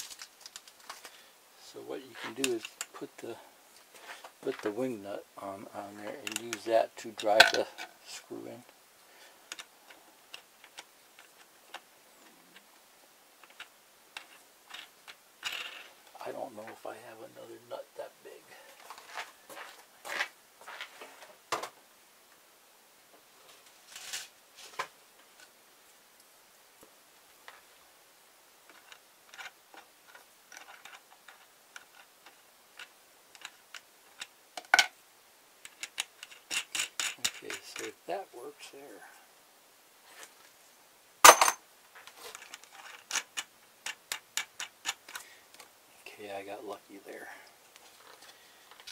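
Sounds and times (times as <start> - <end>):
metal nut and bolt clicking: 35.6 - 37.9.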